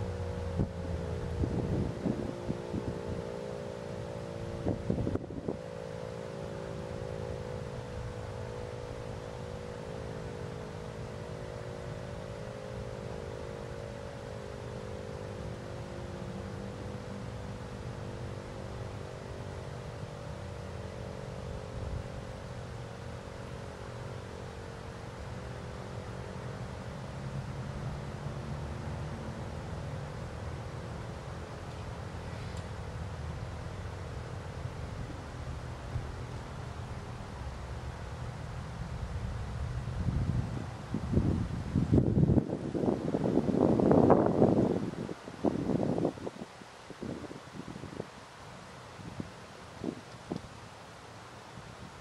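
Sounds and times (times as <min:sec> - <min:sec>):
wind noise on microphone: 0:00.0 - 0:03.2, 0:04.5 - 0:05.7, 0:38.6 - 0:50.7, 0:51.5 - 0:52.0
distant warning siren: 0:00.0 - 0:51.9.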